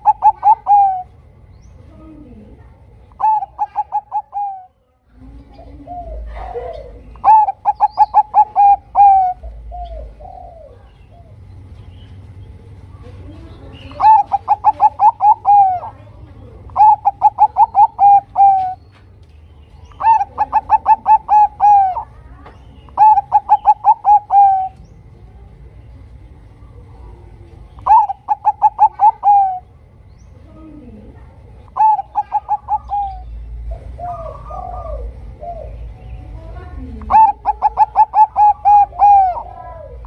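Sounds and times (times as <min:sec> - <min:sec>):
dove cooing: 0:00.0 - 0:01.3, 0:01.9 - 0:11.5, 0:13.3 - 0:18.9, 0:19.8 - 0:24.9, 0:26.8 - 0:40.0.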